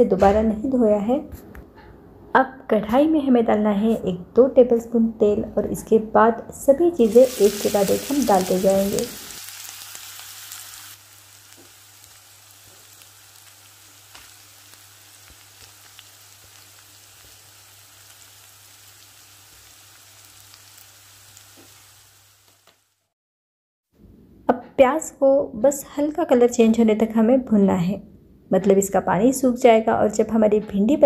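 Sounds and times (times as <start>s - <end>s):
onions sizzling in oil: 7.0s - 23.1s.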